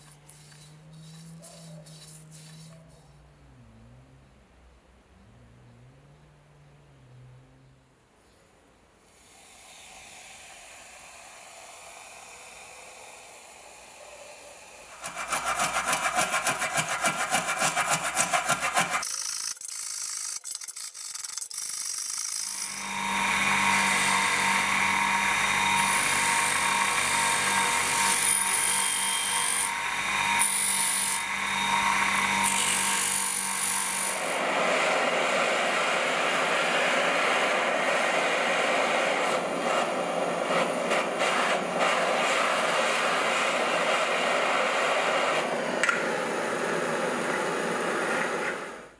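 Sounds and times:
wire brush wheel scrubbing metal: 0.0s - 3.0s, 14.9s - 27.2s
scraping strokes: 0.0s - 3.1s, 14.9s - 19.2s.

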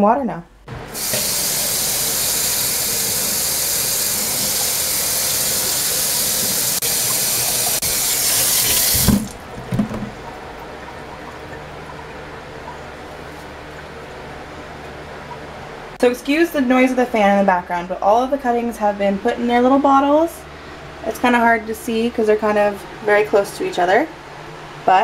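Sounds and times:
room fan humming: 0.0s - 25.0s
faucet running into steel sink: 1.0s - 9.4s
soft knocks: 9.0s - 10.2s.

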